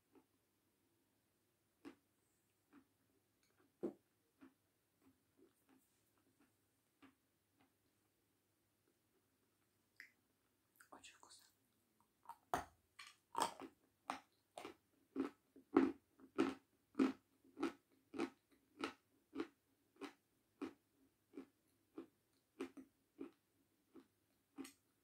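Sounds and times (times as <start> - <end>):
crunchy chewing: 1.8 - 2.1, 2.7 - 3.8, 4.4 - 7.8, 12.3 - 24.9.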